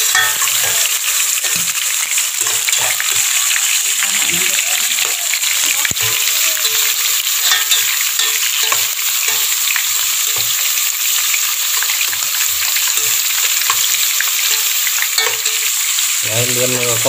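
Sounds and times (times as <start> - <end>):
aromatics sizzling in hot oil: 0.0 - 17.0
spatula scraping metal pot: 0.1 - 4.3, 5.0 - 10.8.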